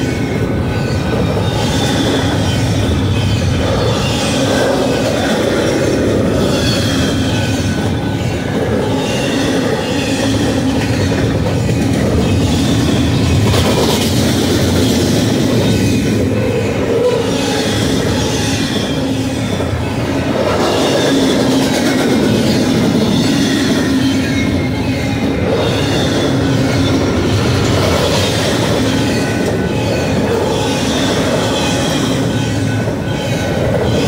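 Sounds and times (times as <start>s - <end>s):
steel wheels rumbling on rail: 0.0s - 34.0s
wheels squealing: 0.0s - 34.0s.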